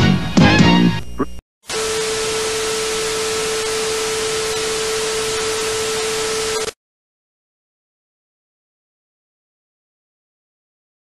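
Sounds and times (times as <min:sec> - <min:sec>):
television static hiss: 0:01.1 - 0:06.7.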